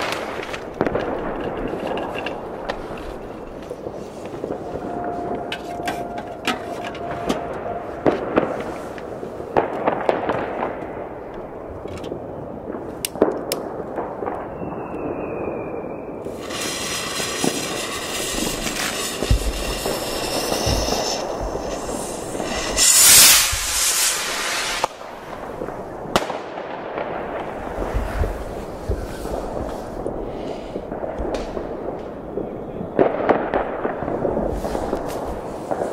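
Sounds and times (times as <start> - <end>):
firecracker and firework bangs: 0.0 - 35.9
skyrocket launching with rushing hiss: 16.3 - 25.7.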